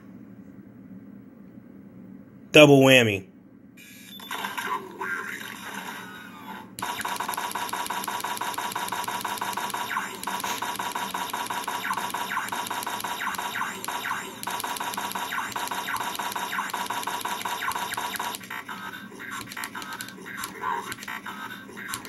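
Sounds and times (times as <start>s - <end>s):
electronic buzzing firing effect: 6.8s - 18.7s.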